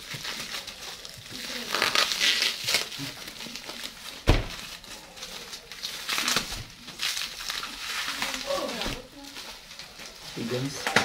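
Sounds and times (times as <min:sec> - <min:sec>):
scissors cutting plastic: 0:00.0 - 0:04.0
plastic wrap crinkling: 0:00.0 - 0:11.0
loud thump: 0:04.3 - 0:04.5.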